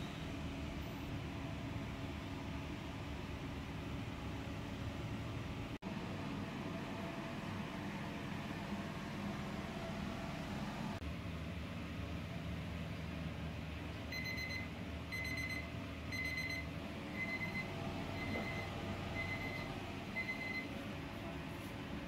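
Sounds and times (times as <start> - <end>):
electronic alarm beeping: 14.1 - 20.7.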